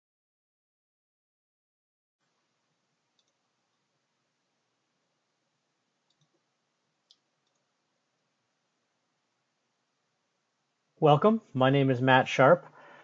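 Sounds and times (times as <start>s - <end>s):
computer mouse clicks: 3.1s - 3.4s, 6.0s - 6.4s, 7.0s - 7.7s.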